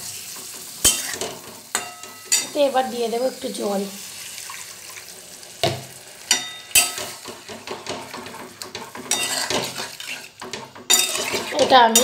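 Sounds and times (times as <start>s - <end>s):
gravy sizzling: 0.0s - 12.0s
metal spatula scraping pan: 0.3s - 2.7s, 5.6s - 12.0s.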